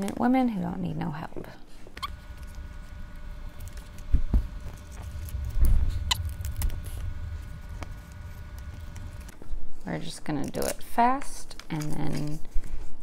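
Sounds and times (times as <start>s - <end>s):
dull low thumps: 2.6s - 9.4s.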